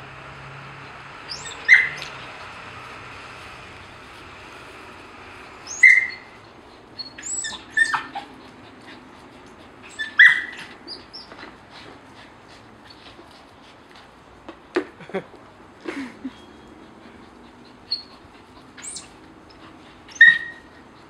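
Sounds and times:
dog yelping: 1.3 - 2.3, 5.6 - 6.4, 7.0 - 8.6, 9.8 - 11.4, 17.6 - 19.2, 20.0 - 20.8.

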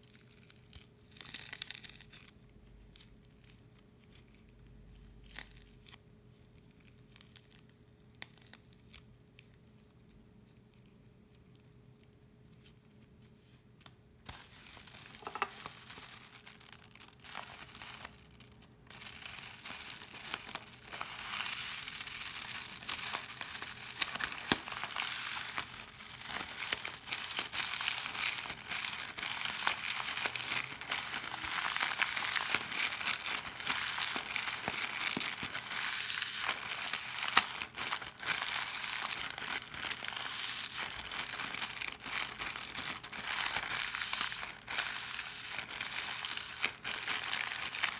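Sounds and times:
foam beads pouring onto slime: 14.3 - 47.9
plastic bag crinkling: 14.3 - 47.9.

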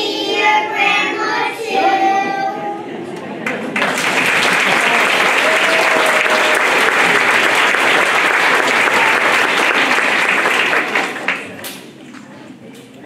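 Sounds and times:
crowd applauding: 3.4 - 11.8.

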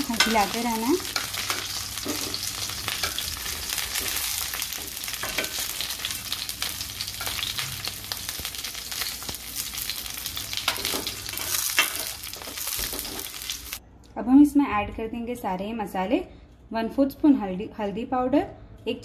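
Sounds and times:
gourds sizzling in hot oil: 0.0 - 13.8.

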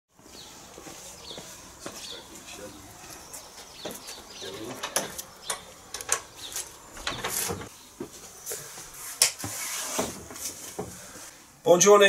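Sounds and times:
wooden door unbolted and opened: 4.7 - 7.7.

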